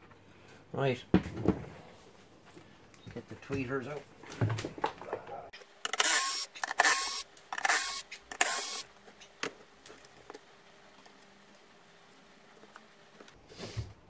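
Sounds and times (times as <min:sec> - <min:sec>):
powered screwdriver running: 0:05.8 - 0:08.9.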